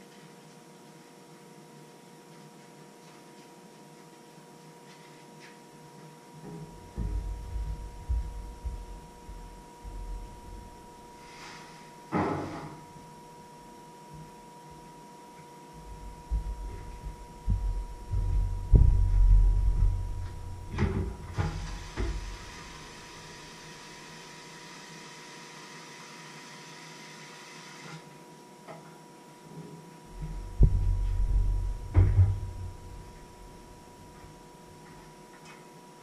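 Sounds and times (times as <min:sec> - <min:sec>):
faint electrical hum: 0:00.0 - 0:36.0
low thuds and knocks: 0:06.8 - 0:11.0, 0:15.8 - 0:22.4, 0:30.1 - 0:33.8.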